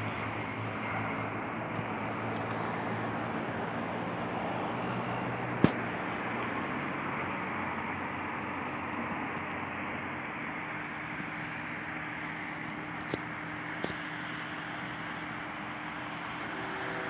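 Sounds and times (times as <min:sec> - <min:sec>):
distant diesel locomotive rumbling: 0:15.3 - 0:17.0.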